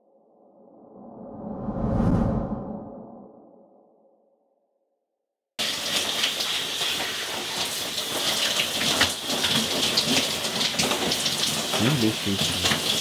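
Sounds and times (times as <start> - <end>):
shower water spraying: 5.6 - 13.0.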